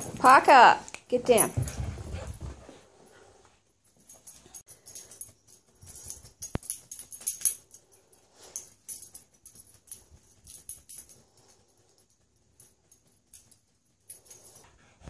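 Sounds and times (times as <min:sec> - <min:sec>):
dog scuffling on carpet: 0:01.5 - 0:02.8.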